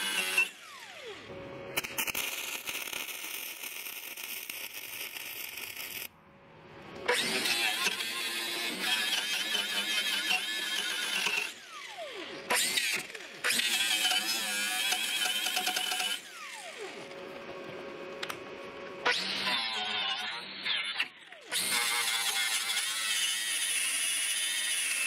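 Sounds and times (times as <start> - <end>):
angle grinder wire wheel on metal: 1.8 - 6.1, 7.2 - 11.6, 13.6 - 16.3.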